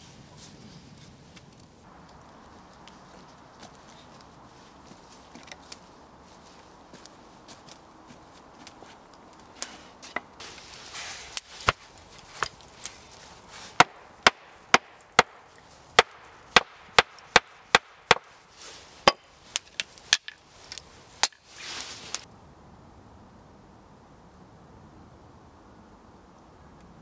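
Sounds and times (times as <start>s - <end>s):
scraping rustle: 8.7s - 13.8s, 18.4s - 22.3s
hatchet chopping wood: 11.6s - 12.6s, 13.8s - 18.4s, 19.0s - 20.4s.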